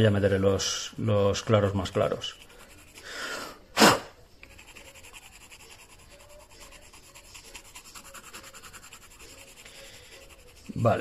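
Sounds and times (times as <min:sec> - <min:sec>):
pencil scratching on card: 0:00.6 - 0:03.1, 0:04.4 - 0:11.0
burst of breath: 0:03.0 - 0:04.0.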